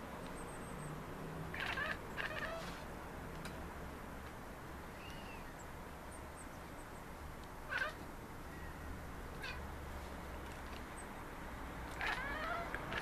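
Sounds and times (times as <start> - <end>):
cat chattering: 1.5 - 2.7, 9.4 - 9.6, 12.0 - 13.0.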